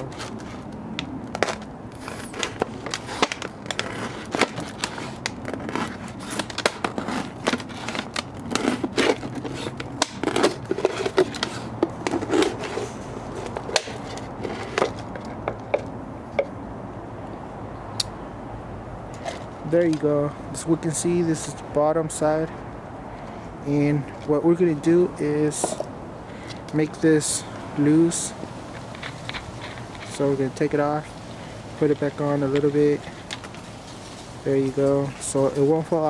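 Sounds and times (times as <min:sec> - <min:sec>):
plastic crackling and crinkling: 0:00.0 - 0:15.4, 0:31.8 - 0:36.0
knife cutting plastic bottle: 0:01.3 - 0:15.0.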